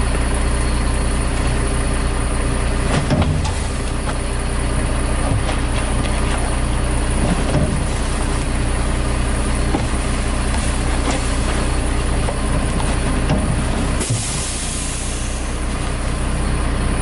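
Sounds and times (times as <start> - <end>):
diesel engine idling: 0.0 - 17.0
trash cans knocking: 9.6 - 14.4.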